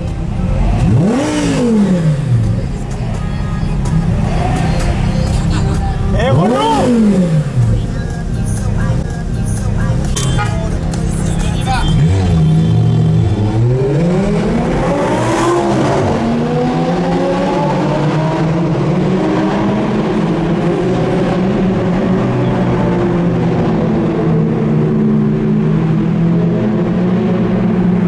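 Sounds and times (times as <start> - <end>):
car engine revving hard: 0.6 - 2.5, 6.2 - 7.7, 11.8 - 28.0.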